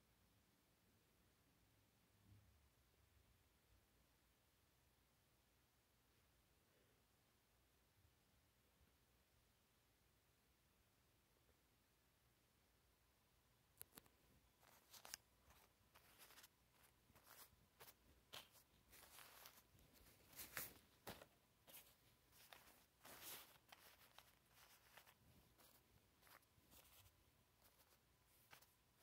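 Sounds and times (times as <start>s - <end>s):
toy boxes rustling and tapping: 13.8s - 28.8s.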